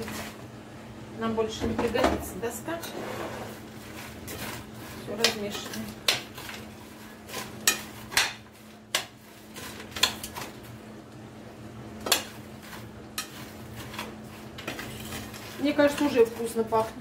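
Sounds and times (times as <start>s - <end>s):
spoon scraping ceramic dish: 13.2s - 16.2s.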